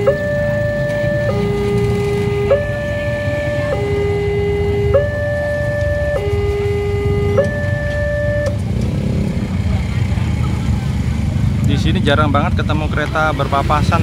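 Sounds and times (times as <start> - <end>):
two-tone crossing alarm: 0.0 - 9.2
motorcycle engines idling: 0.0 - 14.0.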